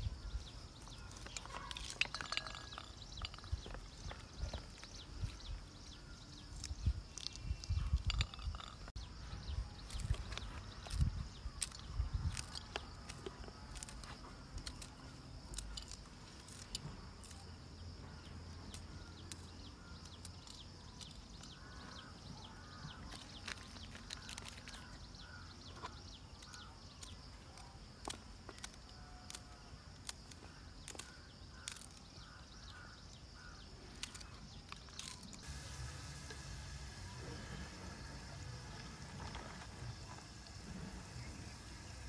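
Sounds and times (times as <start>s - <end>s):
pea pods snapping: 9.8s - 17.5s, 18.6s - 35.4s
steady high hum: 35.4s - 42.0s.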